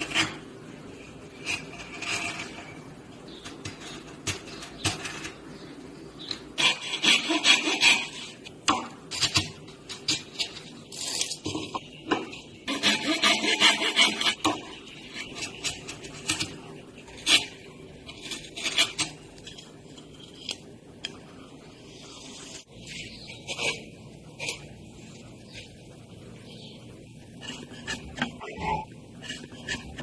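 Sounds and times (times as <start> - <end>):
chisel scraping wood: 1.0 - 5.5, 6.6 - 8.5, 12.6 - 20.7, 27.4 - 30.0.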